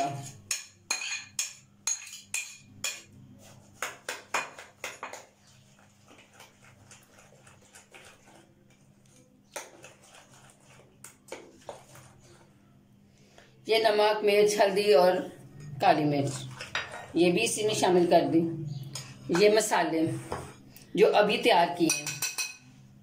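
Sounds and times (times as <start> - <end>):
metal spoon clinking on glass bowl: 0.0 - 3.1, 21.8 - 22.7
wet mixing sounds: 2.9 - 18.2.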